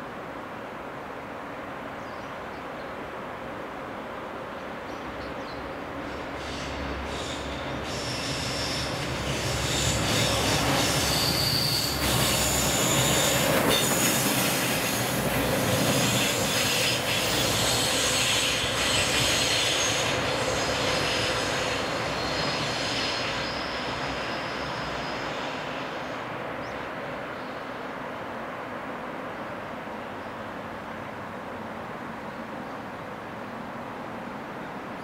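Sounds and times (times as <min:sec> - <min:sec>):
electric locomotive passing: 0:05.0 - 0:27.3
wheels squealing on track: 0:06.4 - 0:25.5.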